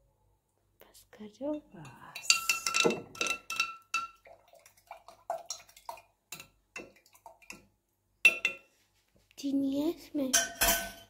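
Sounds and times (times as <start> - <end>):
liquid sounds: 2.3 - 7.7.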